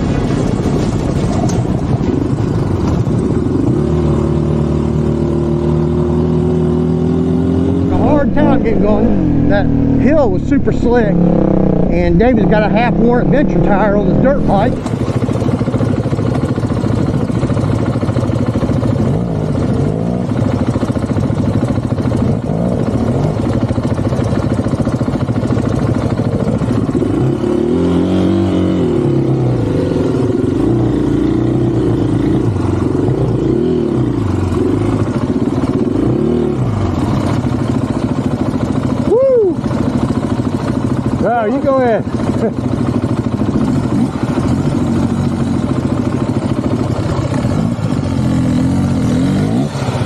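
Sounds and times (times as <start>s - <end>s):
motorcycle engine revving: 0.0s - 50.0s.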